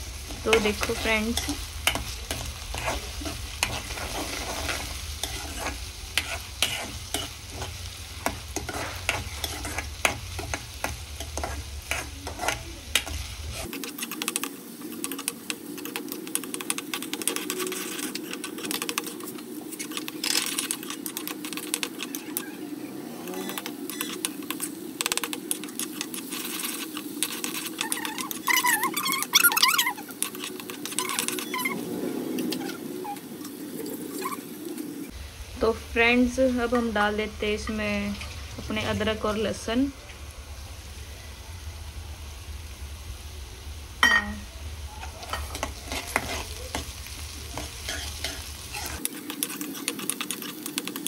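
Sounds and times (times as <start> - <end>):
food sizzling in hot oil: 0.0 - 51.0
spoon scraping a pan: 0.2 - 22.4, 23.2 - 31.8, 45.0 - 51.0.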